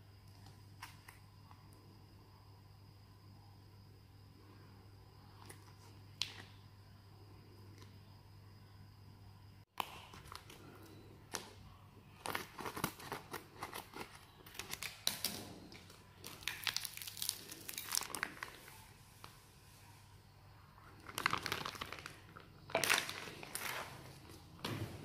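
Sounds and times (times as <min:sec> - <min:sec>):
plastic pouch crinkling: 0:16.2 - 0:18.9, 0:21.0 - 0:24.1.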